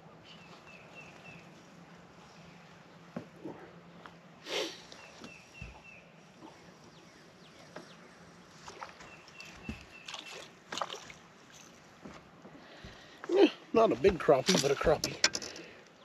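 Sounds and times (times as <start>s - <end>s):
water splashing: 8.6s - 11.9s.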